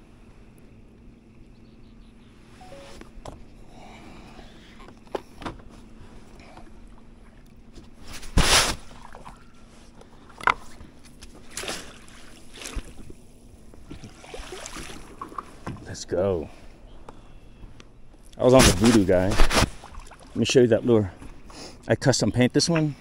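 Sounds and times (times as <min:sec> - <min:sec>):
faint steady hum: 0:00.0 - 0:23.0
knocks and bumps in a boat: 0:13.8 - 0:16.0.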